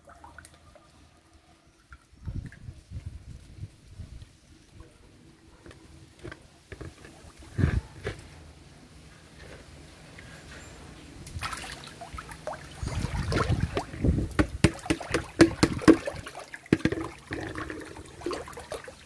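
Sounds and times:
fish splashing in water: 11.3s - 19.0s.

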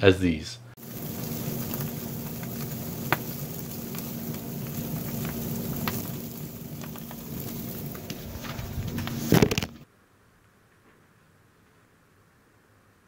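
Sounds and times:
low hum: 0.7s - 9.8s
fish sizzling and crackling in flames: 0.8s - 9.8s.

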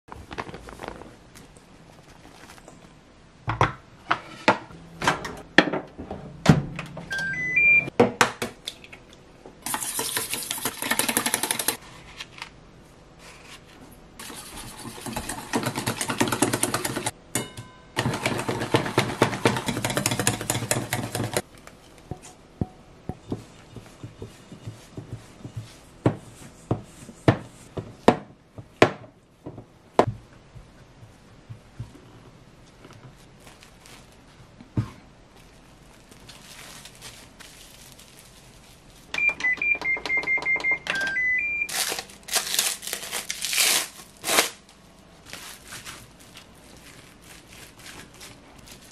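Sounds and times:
electronic beeps: 7.1s - 7.9s, 39.2s - 41.7s
spatula tapping and scraping bowl: 14.3s - 17.1s, 18.0s - 21.4s, 22.1s - 27.9s.

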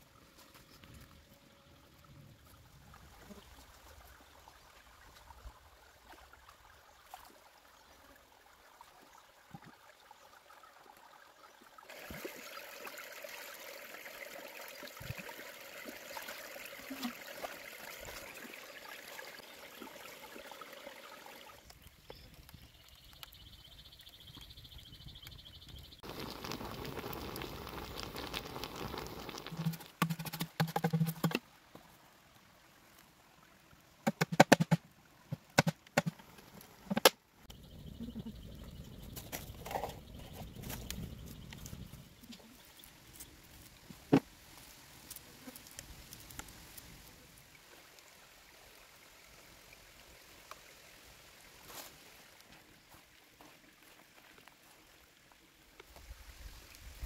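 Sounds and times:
water running and trickling: 1.9s - 33.8s.

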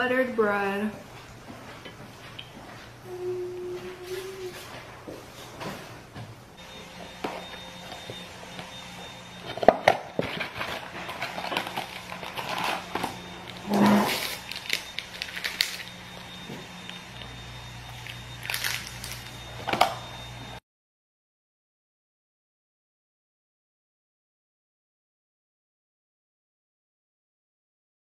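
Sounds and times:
paper crinkling and rustling: 9.5s - 16.1s, 18.0s - 19.9s.

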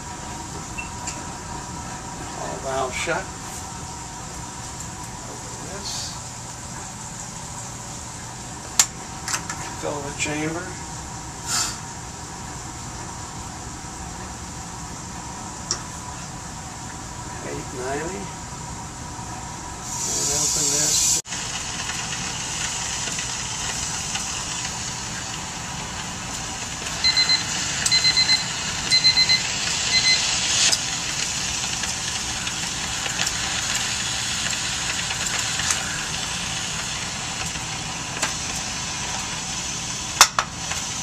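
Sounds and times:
gas venting hiss: 5.3s - 6.4s, 11.4s - 12.0s, 19.8s - 41.0s
short electronic beeps: 27.0s - 30.3s.

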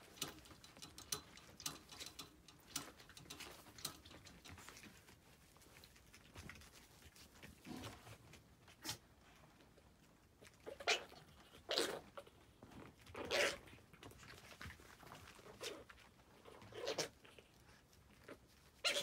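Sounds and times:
faint clicks and taps: 0.0s - 8.5s.

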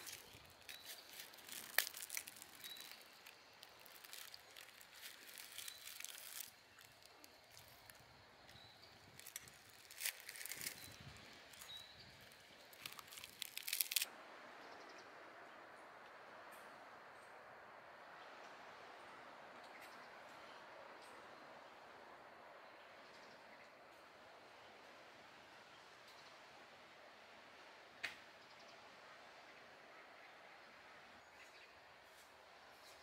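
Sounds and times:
plastic wrapper crinkling and tearing: 0.0s - 8.0s, 9.0s - 14.1s
faint outdoor hiss: 0.0s - 33.0s.

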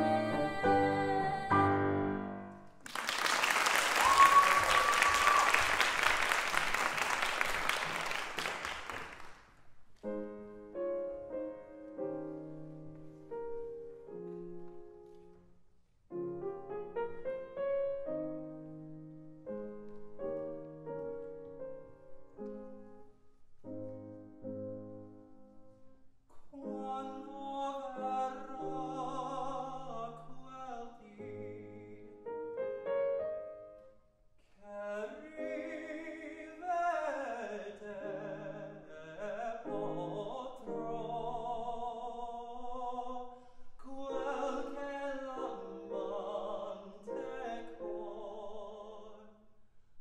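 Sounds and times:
slow gentle grand piano: 0.0s - 2.8s, 9.9s - 49.4s
audience applauding: 2.8s - 9.5s
high cheer: 2.9s - 9.2s.

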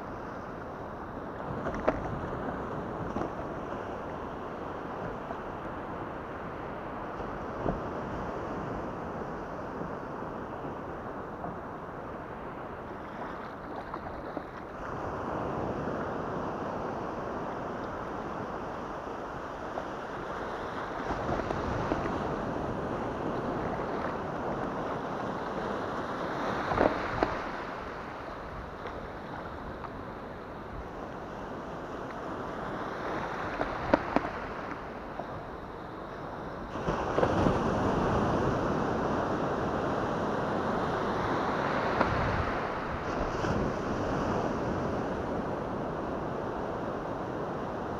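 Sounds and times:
surf washing around kayak: 0.0s - 47.9s
wind buffeting microphone: 36.7s - 47.9s.

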